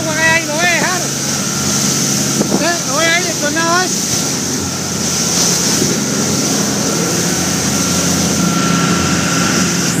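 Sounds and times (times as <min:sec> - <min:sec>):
motorboat engine drone: 0:00.0 - 0:10.0
water rushing past hull: 0:00.0 - 0:10.0
wind noise on microphone: 0:00.0 - 0:10.0.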